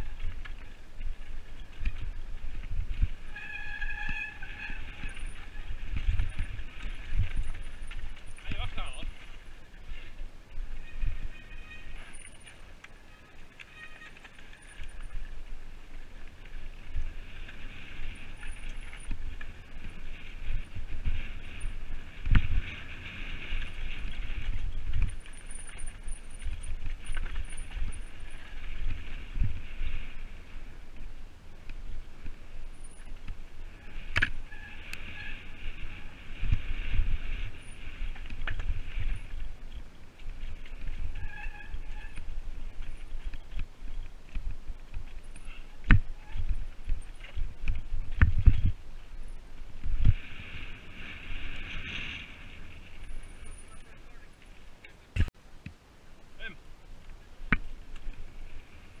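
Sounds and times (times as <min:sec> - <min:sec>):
wind on microphone: 0:00.0 - 0:12.1, 0:16.2 - 0:53.8
bike rattling over rough trail: 0:00.0 - 0:55.5, 0:56.4 - 0:59.0
short squeal: 0:03.3 - 0:05.8, 0:41.1 - 0:42.3.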